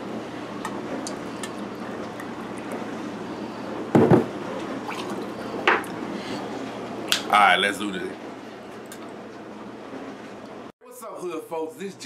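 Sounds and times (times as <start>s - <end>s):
heavy thud on counter: 3.9s - 4.3s.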